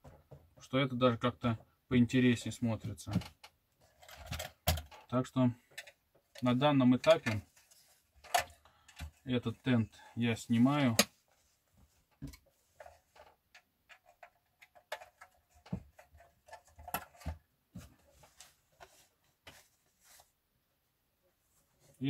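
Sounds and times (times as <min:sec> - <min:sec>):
hands handling plastic toy parts: 0:03.0 - 0:09.7, 0:10.5 - 0:20.3.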